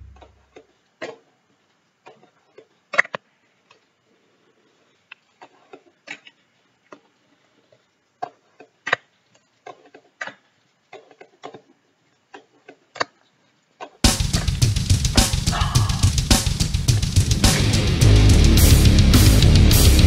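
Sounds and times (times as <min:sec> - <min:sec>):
rock music: 0:14.0 - 0:20.0.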